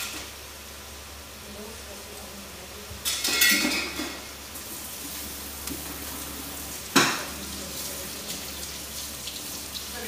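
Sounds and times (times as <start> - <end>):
water sizzling in hot wok: 3.0 - 10.0.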